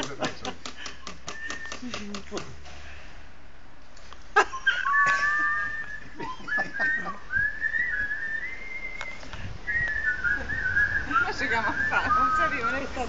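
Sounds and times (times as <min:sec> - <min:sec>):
person whistling: 0:01.3 - 0:01.8, 0:04.7 - 0:12.7.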